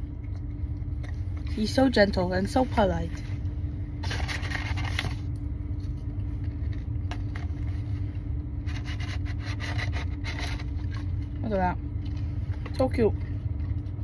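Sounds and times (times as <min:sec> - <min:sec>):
low rumble of car interior: 0:00.0 - 0:14.0
paper box crinkling and scraping: 0:04.0 - 0:11.4.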